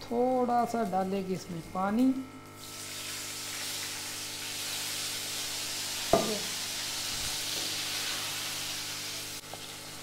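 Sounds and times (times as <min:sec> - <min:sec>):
oil sizzling in a pan: 0:02.6 - 0:10.0.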